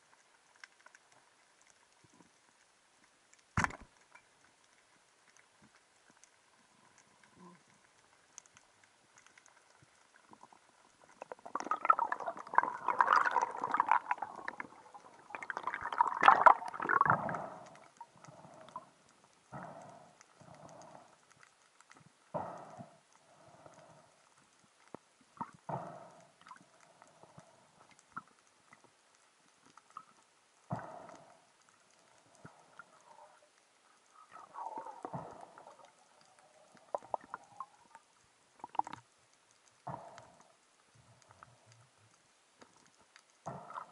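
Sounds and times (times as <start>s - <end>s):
underwater knocks and rustles: 0.0s - 43.9s
muffled underwater rumbling and scraping: 10.3s - 21.1s.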